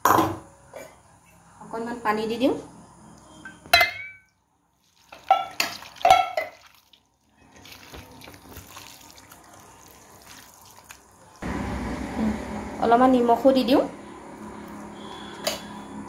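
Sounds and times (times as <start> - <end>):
hands squishing marinade: 4.8 - 11.4
water pouring into steel bowl: 4.9 - 11.4.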